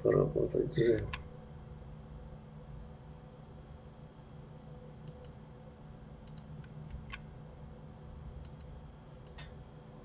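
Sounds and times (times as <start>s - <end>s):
steady low hum: 0.0s - 10.0s
mouse and keyboard clicks: 5.0s - 5.4s, 6.2s - 7.3s, 8.4s - 9.6s.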